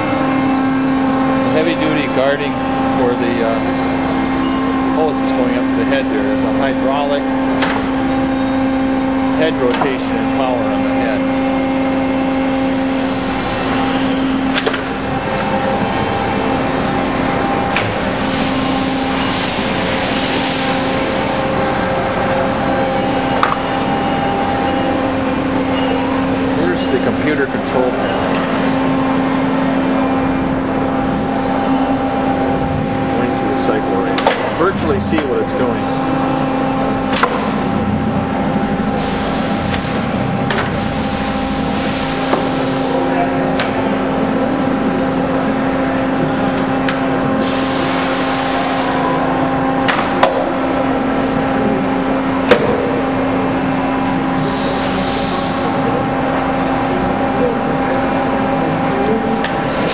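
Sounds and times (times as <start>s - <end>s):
hydraulic pump humming: 0.0s - 59.9s
hydraulic hiss: 37.4s - 39.9s, 40.7s - 43.1s, 47.4s - 49.0s, 54.4s - 55.7s.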